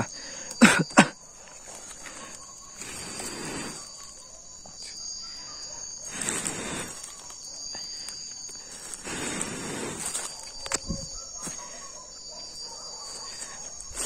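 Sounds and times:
insects chirring: 0.0s - 14.0s
soft breathy rushes of noise: 8.8s - 10.4s.

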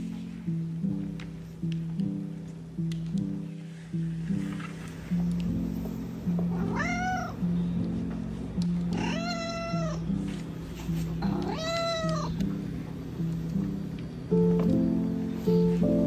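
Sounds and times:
soft music: 0.0s - 16.0s
cat meowing: 6.5s - 7.4s, 8.9s - 10.0s, 11.2s - 12.4s.

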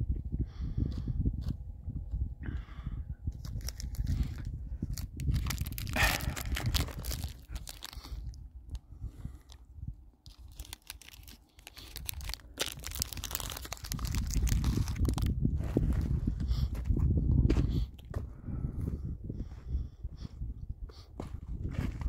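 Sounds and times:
low rumble: 0.0s - 10.7s, 12.0s - 22.0s
plastic wrapper crinkling: 3.4s - 8.3s, 10.2s - 15.3s.

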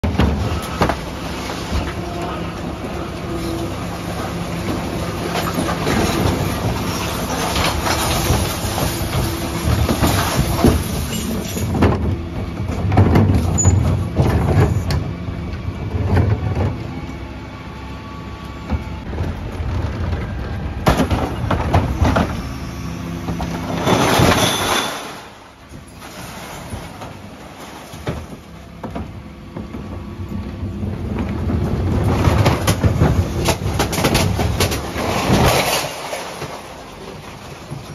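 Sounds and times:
truck engine and hydraulic drone: 0.0s - 37.9s
bins knocking and clattering: 4.3s - 15.2s, 19.1s - 22.5s, 23.2s - 30.1s, 30.8s - 37.9s.

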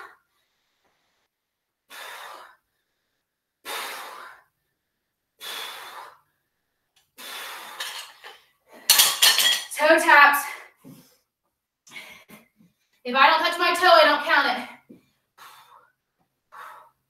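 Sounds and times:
woman breathing hard: 1.9s - 4.6s, 5.4s - 6.4s, 7.1s - 8.4s, 14.9s - 17.0s.

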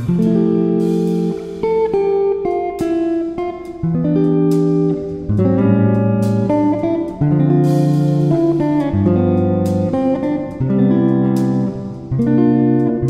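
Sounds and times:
guitar strumming chords: 0.0s - 13.0s.

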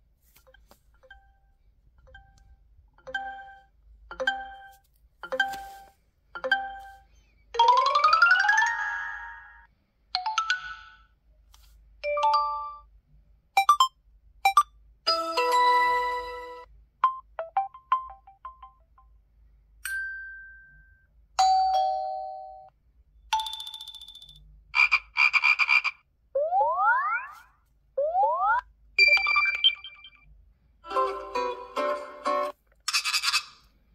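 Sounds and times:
phone chimes and beeps: 3.1s - 7.0s, 29.0s - 30.2s.

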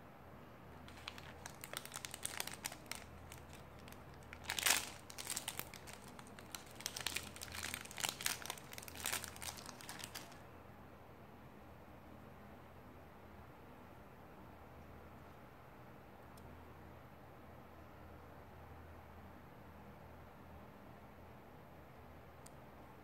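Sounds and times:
foil pouch crinkling: 0.8s - 10.4s.

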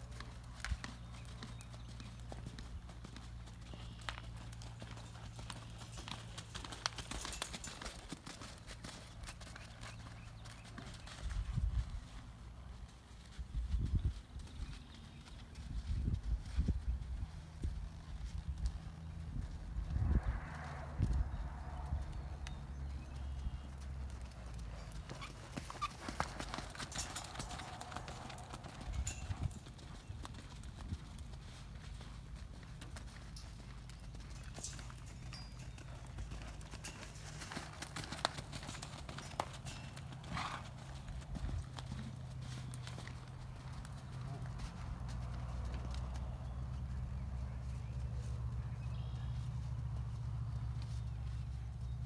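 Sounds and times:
hoofbeats on dirt: 0.0s - 52.0s
steady low rumble: 15.7s - 24.2s.

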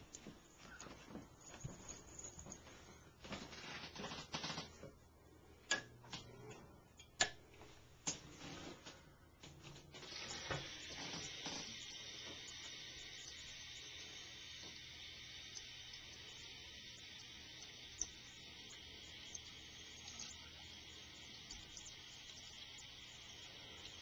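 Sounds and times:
tap water running into sink: 10.0s - 24.0s.

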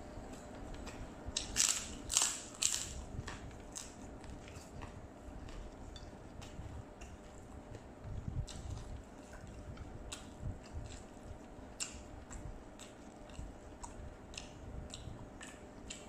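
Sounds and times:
person chewing food: 0.0s - 16.0s.

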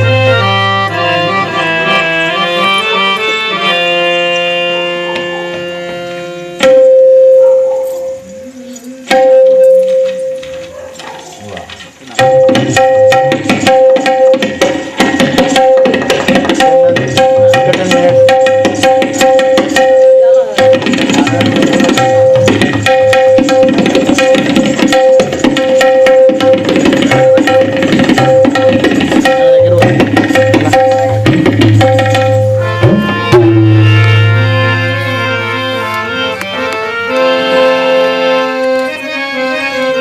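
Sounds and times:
hand drums played fast: 9.1s - 10.1s, 12.1s - 34.7s
steady held note: 29.2s - 38.6s.

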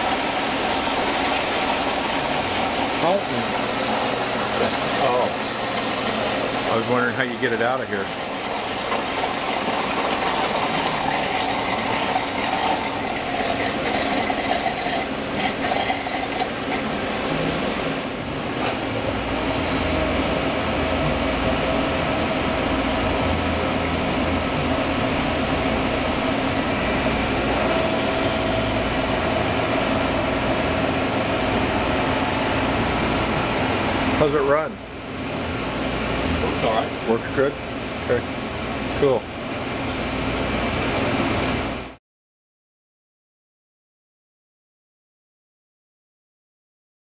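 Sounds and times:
water washing: 0.0s - 18.0s
deep pump hum: 0.0s - 42.0s
machine hum: 0.0s - 42.0s.

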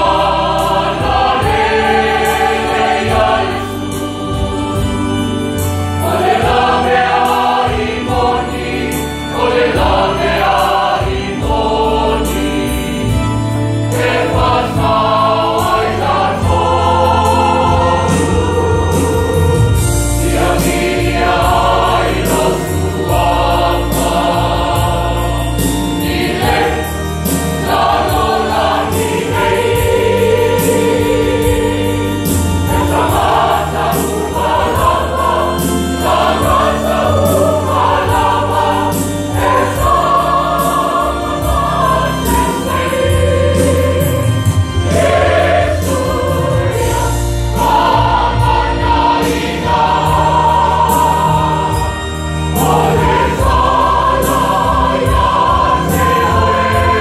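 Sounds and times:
choir singing gospel: 0.0s - 57.0s.

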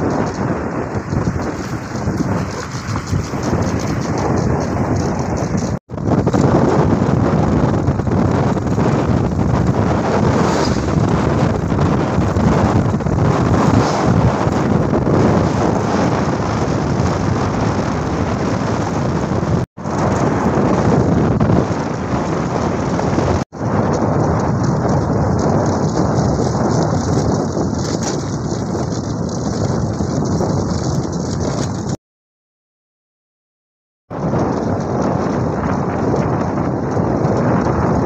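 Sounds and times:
wind buffeting microphone: 0.0s - 32.0s, 34.1s - 38.0s.

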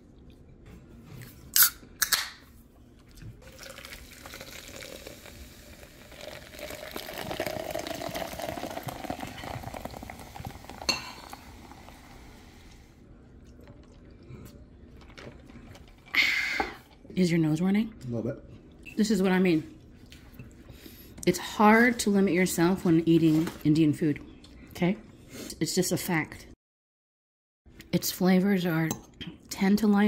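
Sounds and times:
liquid pouring: 3.4s - 12.5s.

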